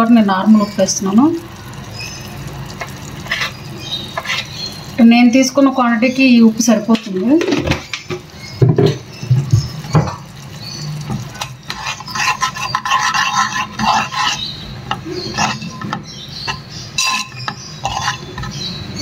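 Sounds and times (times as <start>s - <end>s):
pulp simmering in oil: 0.3s - 6.8s, 7.6s - 19.0s
utensil scraping a pan: 2.8s - 4.8s, 9.6s - 19.0s.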